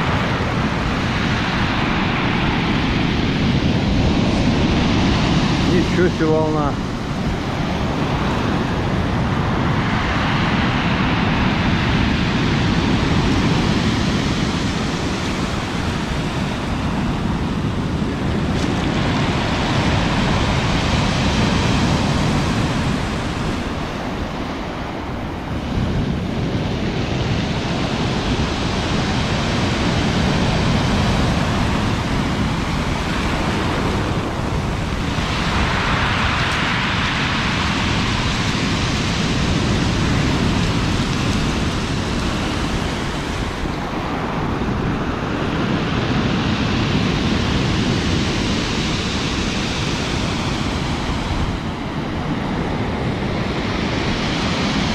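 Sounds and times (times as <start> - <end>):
surf breaking on pebble beach: 0.0 - 53.2.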